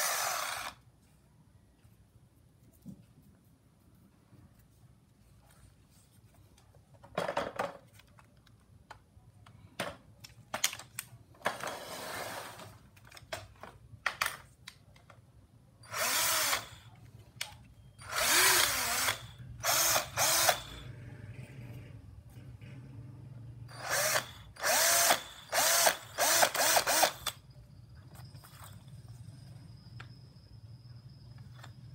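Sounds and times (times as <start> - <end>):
cordless drill spinning: 0.0 - 0.9, 11.6 - 12.8, 15.8 - 16.9, 18.0 - 20.9, 23.7 - 27.4.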